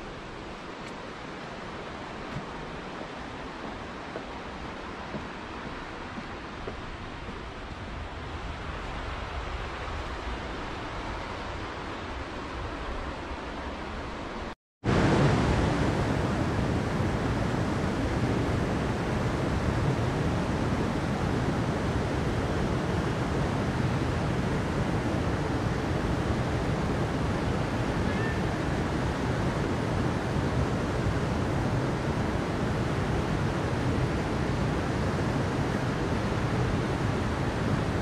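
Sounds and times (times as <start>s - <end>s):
stream rushing over rocks: 14.9s - 38.0s.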